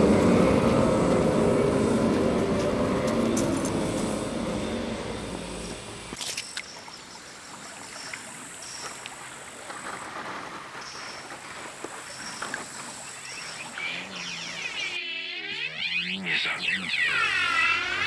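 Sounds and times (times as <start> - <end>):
swirling electronic effect: 13.8 - 18.0.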